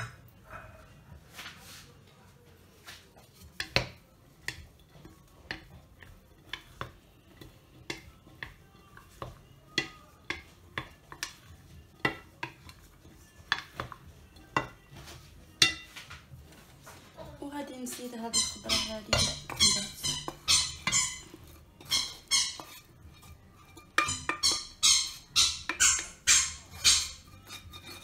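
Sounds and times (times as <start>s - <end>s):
wooden spoon knocking glass bowl: 7.8s - 12.8s, 18.0s - 27.3s.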